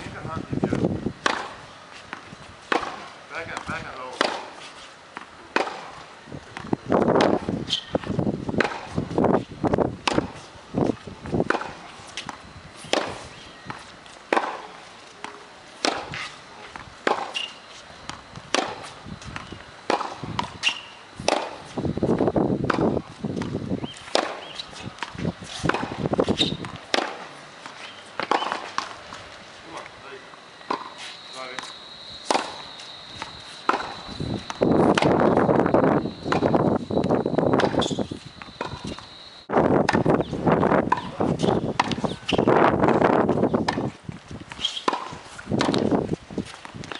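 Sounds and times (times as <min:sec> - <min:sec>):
shoes shuffling on court: 0:00.0 - 0:46.9
tennis ball bouncing: 0:00.7 - 0:09.2, 0:10.0 - 0:29.9, 0:30.6 - 0:39.1, 0:39.8 - 0:46.9
tennis racket striking ball: 0:01.2 - 0:04.6, 0:05.2 - 0:05.9, 0:06.6 - 0:09.0, 0:10.0 - 0:10.5, 0:11.4 - 0:21.7, 0:22.6 - 0:29.0, 0:30.7 - 0:36.6, 0:37.6 - 0:39.1, 0:39.8 - 0:40.2, 0:40.9 - 0:43.0, 0:44.5 - 0:46.0.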